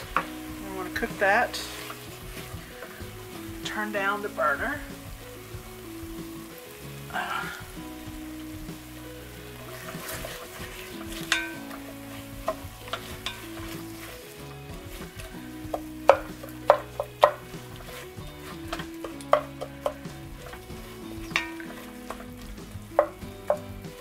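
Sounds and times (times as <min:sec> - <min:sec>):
low sizzle: 0:00.0 - 0:24.0
wooden spoon scraping and knocking pot: 0:00.0 - 0:24.0.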